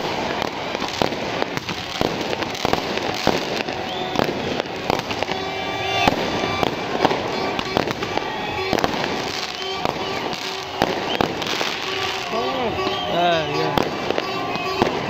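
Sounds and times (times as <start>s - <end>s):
crackling hiss: 0.0s - 15.0s
firecrackers banging: 0.0s - 15.0s
held pitched tone: 3.7s - 15.0s.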